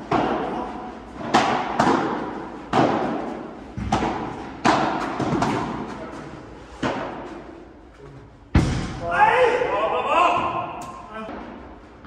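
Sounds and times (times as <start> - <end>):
sharp ball hits echoing: 1.2 - 5.9.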